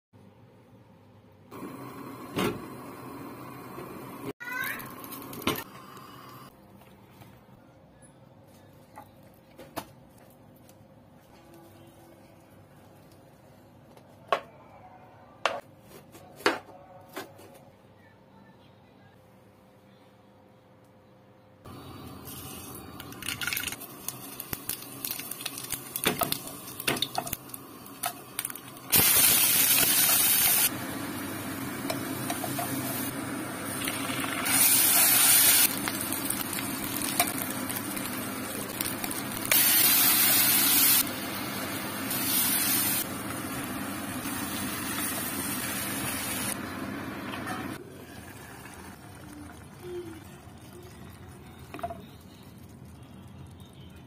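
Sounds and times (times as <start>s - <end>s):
onions sizzling in oil: 23.7s - 49.6s.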